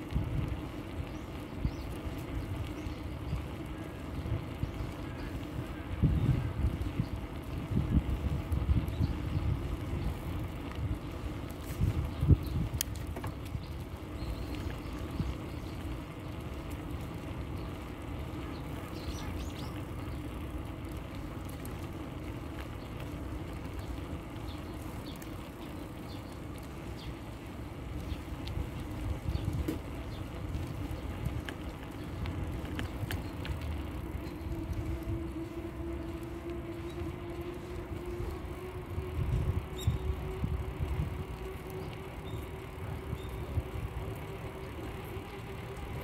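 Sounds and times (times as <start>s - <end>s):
bicycle rolling on asphalt: 0.0s - 46.0s
wind on microphone: 4.2s - 15.7s, 32.3s - 43.9s.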